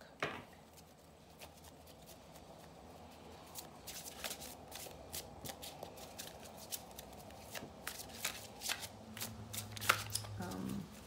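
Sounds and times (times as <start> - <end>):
cards being shuffled: 3.4 - 11.0.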